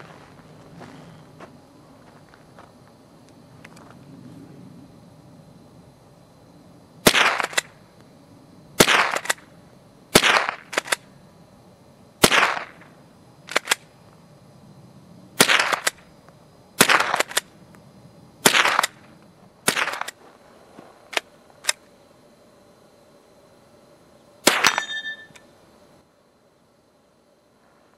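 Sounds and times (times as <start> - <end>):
rifle shots: 7.0 - 7.7, 8.8 - 9.4, 10.1 - 11.0, 12.2 - 12.8, 15.4 - 16.0, 16.8 - 17.5, 18.4 - 19.0, 19.6 - 20.2, 24.4 - 25.3.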